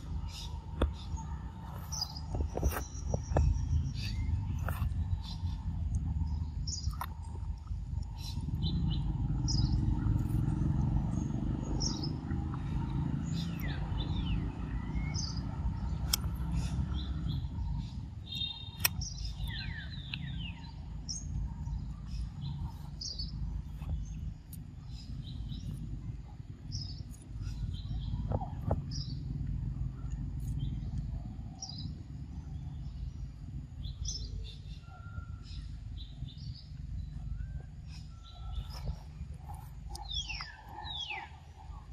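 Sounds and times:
low steady rumble: 0.0 - 41.9
small birds chirping: 0.0 - 41.9
sharp clicks: 16.0 - 16.5, 18.7 - 20.3.

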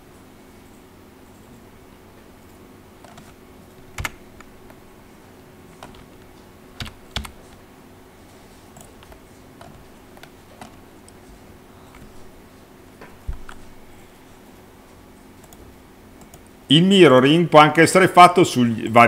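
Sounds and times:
keyboard and mouse clicks: 3.0 - 4.8, 5.7 - 7.6, 8.7 - 11.3, 11.9 - 12.3, 13.2 - 13.7, 15.4 - 16.5.

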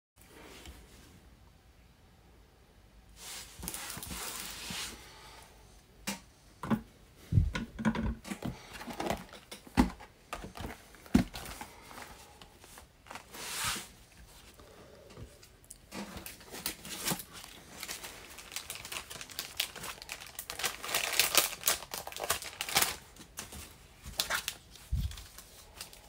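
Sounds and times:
cardboard boxes rustling on desk: 3.2 - 5.0, 8.2 - 14.6, 15.2 - 26.0
boxes knocking and thumping on mat: 7.4 - 11.5.

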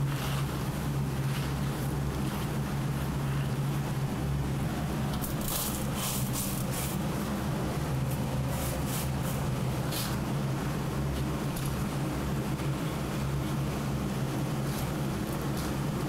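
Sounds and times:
dried fish rustling in salt: 0.0 - 2.8, 5.3 - 7.3
low machine hum: 0.0 - 16.0.

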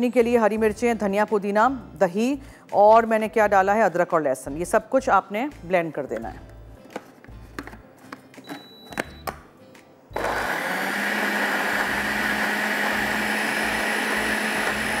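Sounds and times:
blender grinding: 10.1 - 15.0.

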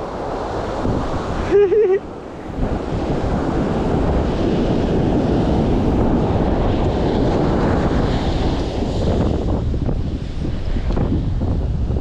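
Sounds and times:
ocean surf: 0.0 - 12.0
wind on microphone: 0.0 - 12.0.

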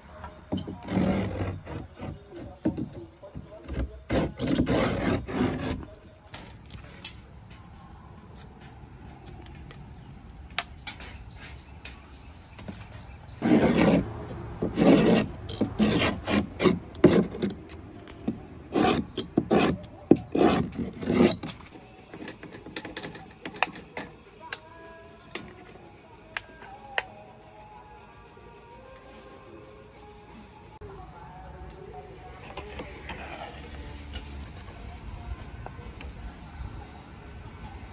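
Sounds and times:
wooden stick scraping wooden hull: 0.6 - 7.2, 10.9 - 24.1, 32.4 - 34.9.

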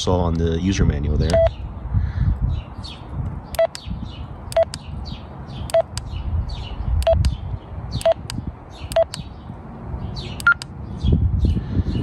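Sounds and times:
walkie-talkie keypad beeps: 1.3 - 1.5, 3.6 - 3.8.

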